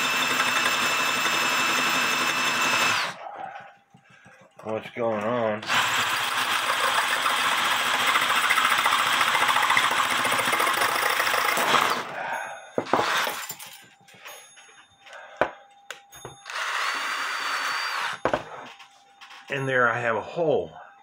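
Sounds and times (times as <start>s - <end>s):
cordless drill boring through steel: 0.0s - 3.2s, 5.6s - 12.1s, 12.9s - 13.5s, 16.4s - 18.3s.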